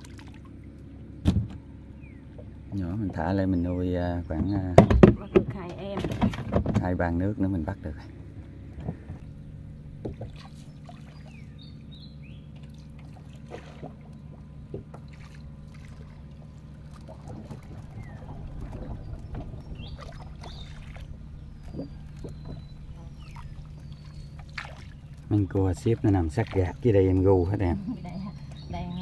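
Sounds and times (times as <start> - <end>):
steady low hum: 0.0 - 29.0
paddle knocks against hull: 1.2 - 1.6, 4.3 - 7.0, 10.0 - 11.3, 12.6 - 16.2, 16.9 - 26.6
paddle swishing through water: 10.0 - 11.6, 12.5 - 29.0
bird chirps: 10.5 - 12.9, 17.6 - 25.8, 27.2 - 29.0.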